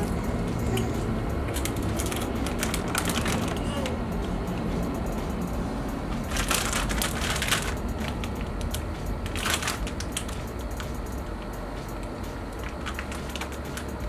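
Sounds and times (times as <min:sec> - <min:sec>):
chip bag crinkling: 0:06.3 - 0:10.4, 0:12.6 - 0:13.9.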